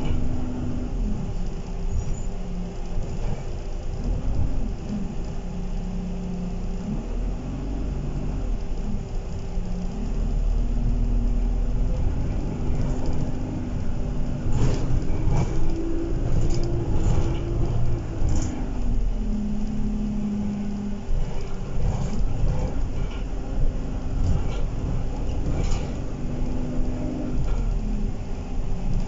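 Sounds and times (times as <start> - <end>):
bus diesel engine: 0.0 - 29.0
road rumble: 0.0 - 29.0
body rattles and knocks: 11.8 - 18.9, 21.1 - 27.8.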